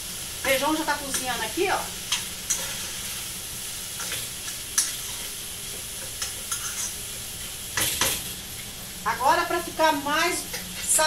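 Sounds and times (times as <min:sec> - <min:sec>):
rice sizzling in a saucepan: 0:00.0 - 0:11.0
spoon scraping a pan: 0:06.0 - 0:07.0.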